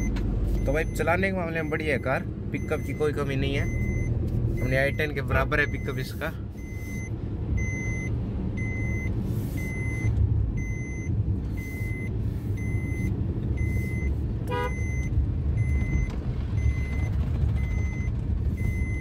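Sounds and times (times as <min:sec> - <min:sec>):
car engine and tyres rumbling: 0:00.0 - 0:19.0
dashboard warning chime beeping: 0:00.0 - 0:19.0
car horn toot: 0:14.5 - 0:15.1.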